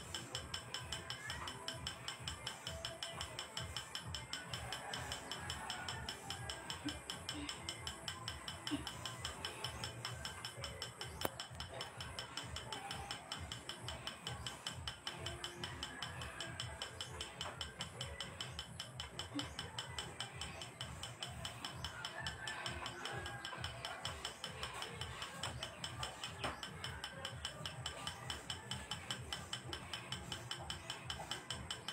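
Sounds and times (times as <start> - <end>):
rapid mechanical clicking: 0.0 - 31.9.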